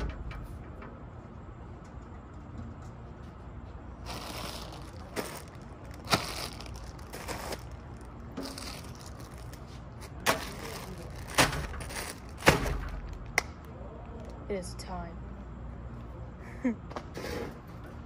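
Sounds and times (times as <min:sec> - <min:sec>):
plastic bags crinkling: 0:04.0 - 0:13.4.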